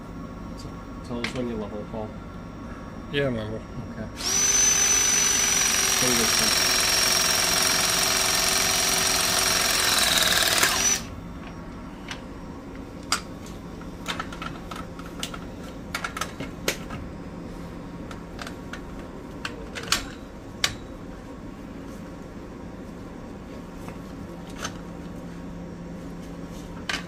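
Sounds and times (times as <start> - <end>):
machine with high whine: 0.0 - 18.1.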